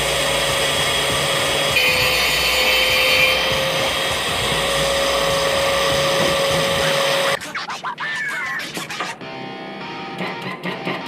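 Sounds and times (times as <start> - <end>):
angle grinder cutting metal: 0.0 - 7.4.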